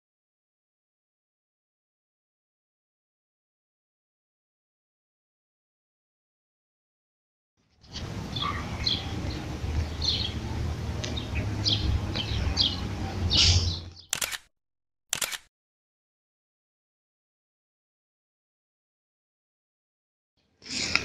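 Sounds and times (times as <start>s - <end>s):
low outdoor rumble: 7.8s - 14.0s
small birds chirping: 7.8s - 14.3s.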